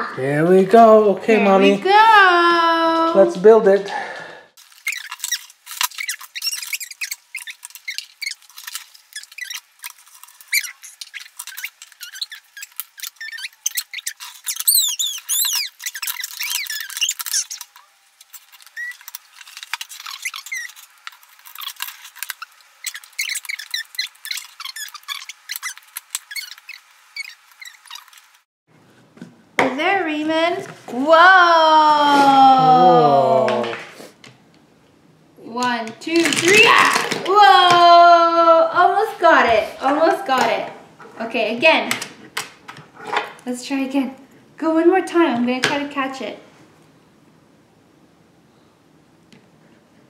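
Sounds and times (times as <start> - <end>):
high squeaky gliding chirps: 4.7 - 28.4
plastic track pieces clicking: 36.0 - 37.4.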